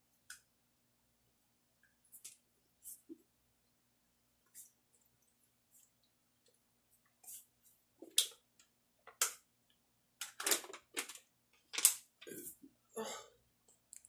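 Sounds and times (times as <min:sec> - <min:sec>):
person gasping: 0:13.0 - 0:13.4.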